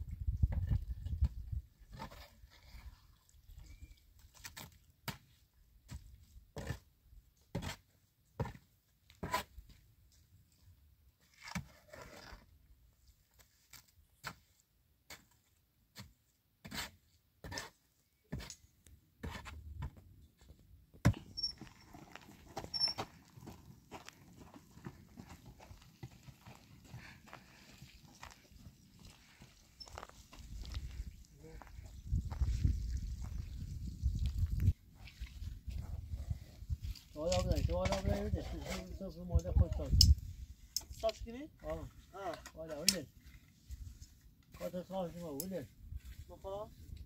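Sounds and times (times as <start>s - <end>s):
shovel scraping and knocking: 11.2s - 12.5s, 13.7s - 18.6s, 19.2s - 20.0s
wheelbarrow being pushed: 21.1s - 30.6s.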